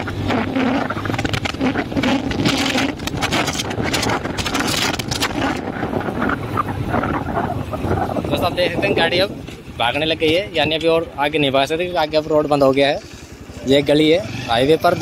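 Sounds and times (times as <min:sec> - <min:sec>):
wind buffeting microphone: 0:00.0 - 0:11.4
motorcycle engine running: 0:00.0 - 0:15.0.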